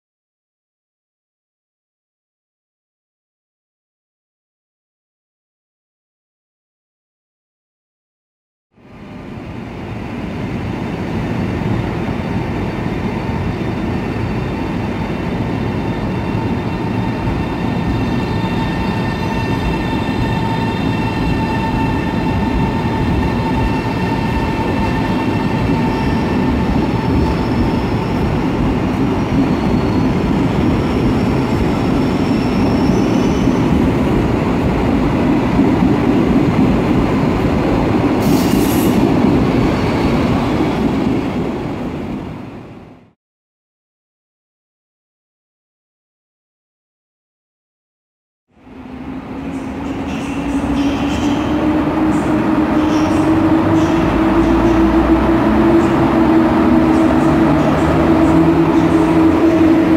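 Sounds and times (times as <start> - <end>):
train wheels rumbling on rails: 9.5 - 42.6, 48.6 - 59.9.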